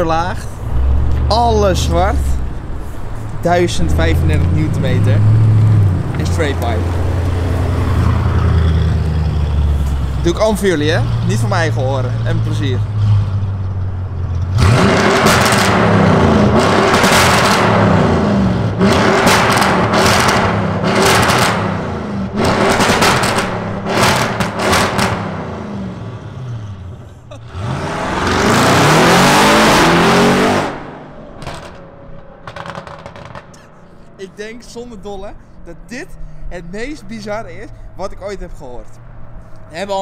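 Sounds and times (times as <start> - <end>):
car engine revving: 0.0 - 35.8
exhaust crackles and bangs: 13.3 - 18.1, 18.7 - 25.5, 31.3 - 33.7.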